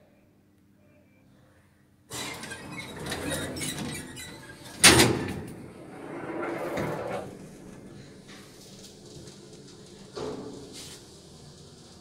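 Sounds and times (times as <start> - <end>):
elevator doors banging shut: 2.1 - 7.4
elevator doors rattling: 2.1 - 12.0.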